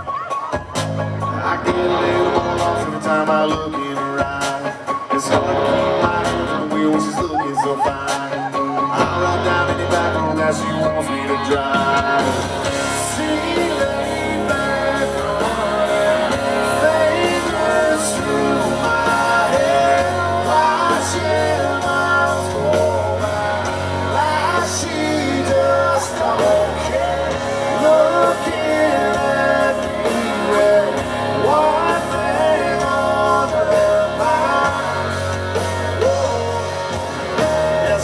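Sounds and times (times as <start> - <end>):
live country-rock band: 0.0 - 38.0
person singing lead vocal: 0.0 - 38.0.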